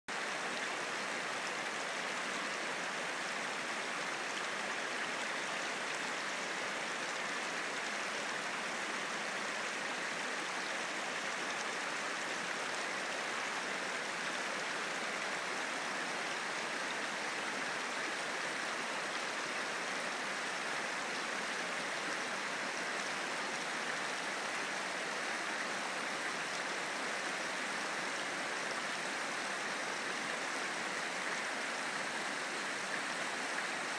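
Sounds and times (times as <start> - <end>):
river rushing over rocks: 0.1 - 33.9.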